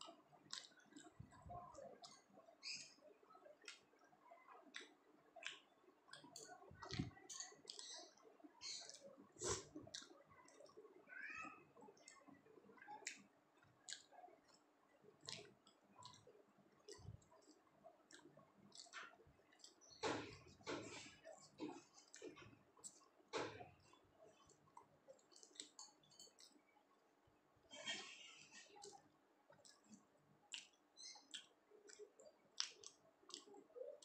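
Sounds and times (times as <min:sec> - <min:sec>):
mouth chewing wetly: 0:00.1 - 0:10.9, 0:11.8 - 0:26.6, 0:28.6 - 0:34.0.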